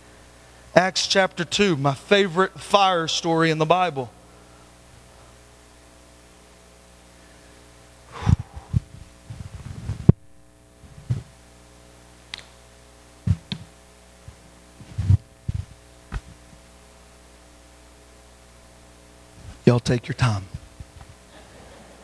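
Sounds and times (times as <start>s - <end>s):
electrical hum: 0.0s - 22.0s
microphone handling thumps: 8.2s - 10.2s, 10.8s - 11.4s, 13.2s - 16.6s
sharp clicks: 12.3s - 12.6s.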